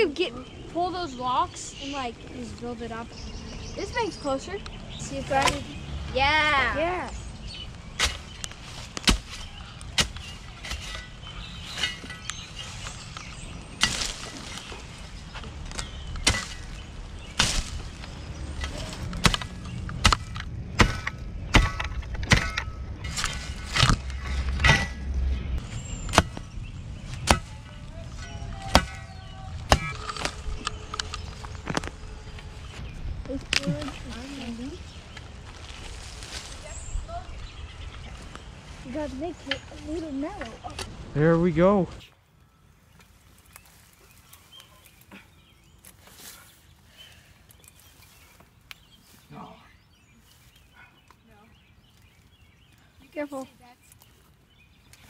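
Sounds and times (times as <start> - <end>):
shovel chopping into dirt and rock: 8.0 - 12.4, 13.8 - 14.8, 15.7 - 25.0, 26.0 - 26.5, 29.7 - 31.9.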